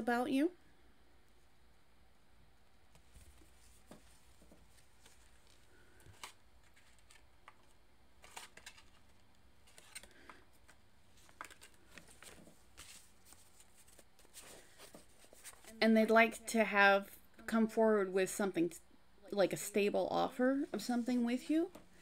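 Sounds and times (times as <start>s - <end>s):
tarot cards rustling and clicking: 2.9s - 15.8s.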